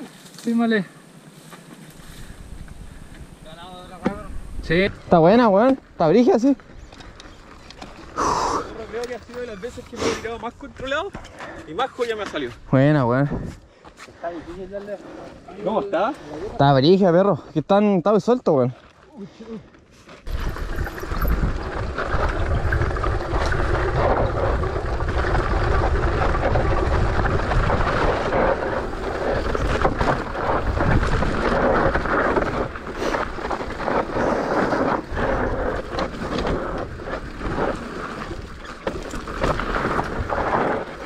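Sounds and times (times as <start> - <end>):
tyre noise on dirt: 0.0 - 16.7, 18.7 - 41.0
bike rattling and knocking: 20.3 - 41.0
wind on microphone: 20.3 - 41.0.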